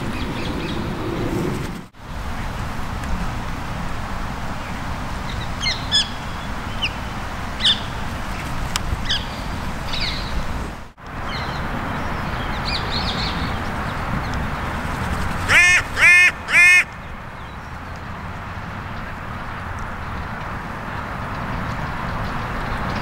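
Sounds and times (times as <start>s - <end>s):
birds chirping: 0.0s - 1.9s, 4.5s - 20.7s
crow cawing: 15.5s - 16.9s.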